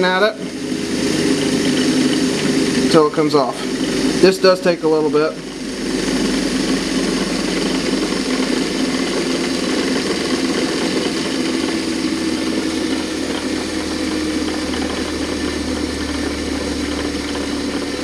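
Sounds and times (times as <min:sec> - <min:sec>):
bench grinder humming: 0:00.0 - 0:18.0.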